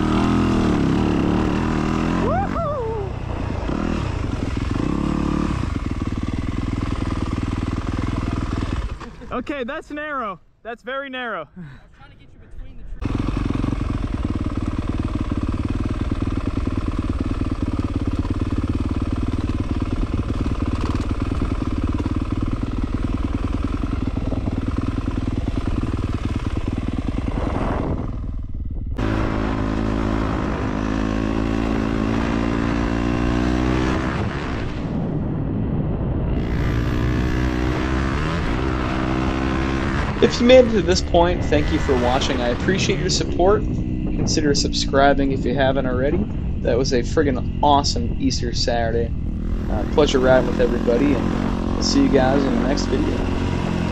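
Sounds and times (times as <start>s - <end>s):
dirt bike engine revving: 0.0s - 10.3s, 13.0s - 35.2s, 36.2s - 53.9s.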